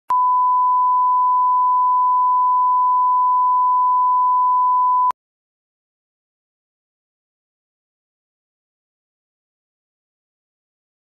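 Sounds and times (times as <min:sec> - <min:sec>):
electronic test tone beep: 0:00.1 - 0:05.1.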